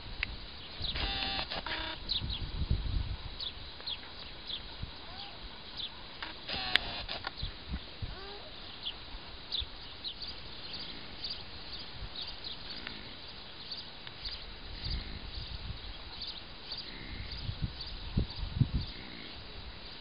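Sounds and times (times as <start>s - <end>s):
small birds chirping: 0.2s - 20.0s.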